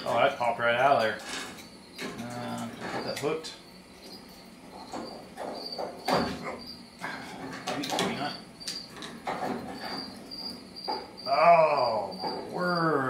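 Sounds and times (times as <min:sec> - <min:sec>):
cricket chirping: 0:00.0 - 0:13.0
steel clunking and scraping: 0:01.0 - 0:11.2
sharp metal knocks: 0:04.0 - 0:06.7, 0:07.4 - 0:12.6.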